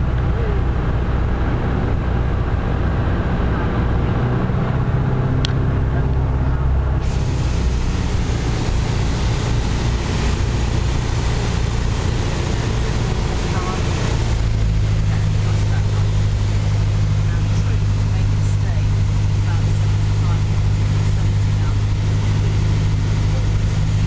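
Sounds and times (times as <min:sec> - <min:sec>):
light aircraft engine droning: 0:00.0 - 0:24.0
air rushing past airframe: 0:05.4 - 0:24.0.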